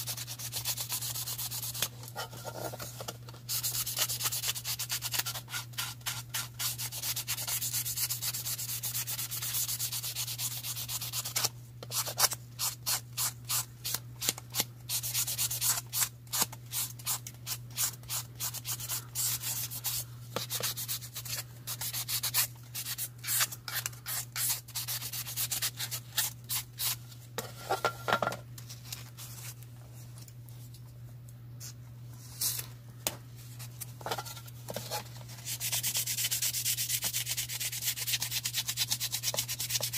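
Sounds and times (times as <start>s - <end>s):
sanding sponge rasping plastic: 0.0s - 1.8s, 3.5s - 13.3s, 17.8s - 23.5s, 35.5s - 39.9s.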